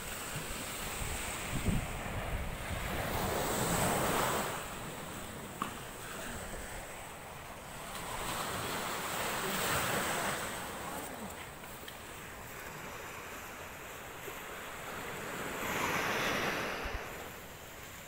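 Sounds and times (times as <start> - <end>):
surf washing on shore: 0.0 - 18.0
wind buffeting microphone: 0.4 - 13.9.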